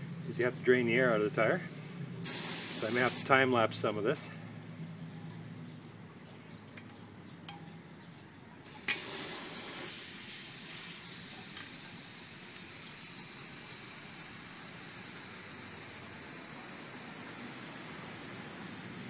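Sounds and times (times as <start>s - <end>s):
air hissing from tyre valve: 2.2s - 3.3s, 8.7s - 19.0s.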